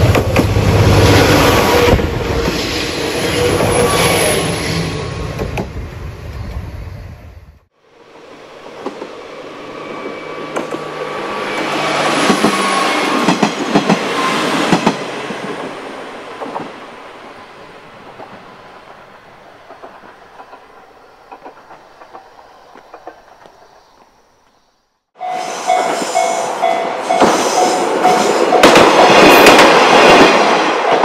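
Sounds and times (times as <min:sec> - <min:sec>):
diesel railcar engine: 0:00.0 - 0:23.8.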